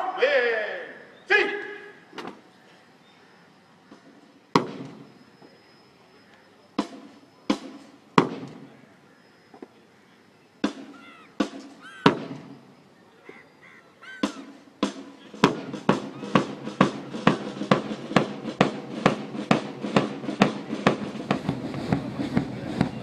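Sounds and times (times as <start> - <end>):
bass drum beats: 15.4 - 23.0.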